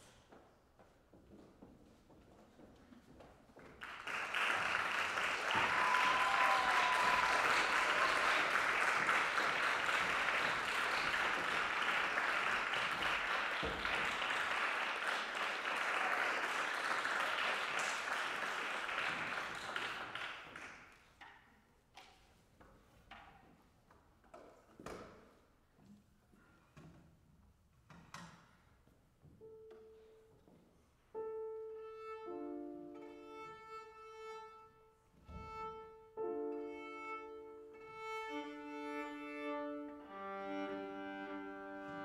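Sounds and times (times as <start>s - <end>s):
audience applauding: 3.8s - 21.0s.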